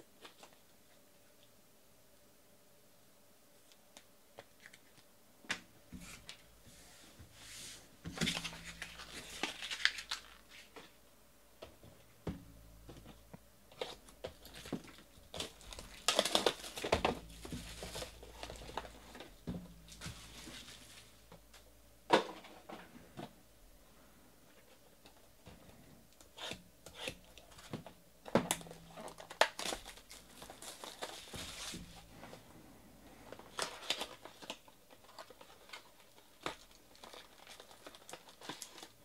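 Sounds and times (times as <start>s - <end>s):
wrapping crinkling and tearing: 8.2s - 11.0s, 13.8s - 21.2s, 28.5s - 32.4s, 33.1s - 39.0s.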